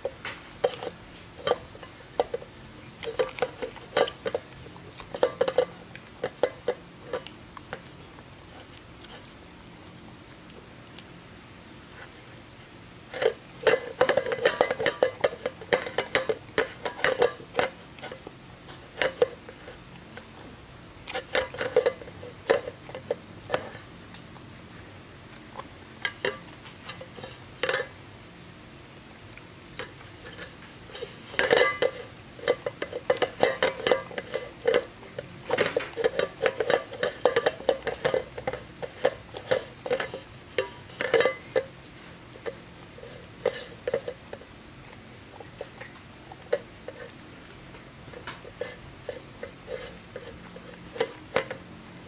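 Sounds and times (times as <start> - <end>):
dog licking metal bowl: 0.0 - 9.4, 13.1 - 20.4, 21.0 - 23.9, 29.7 - 51.6.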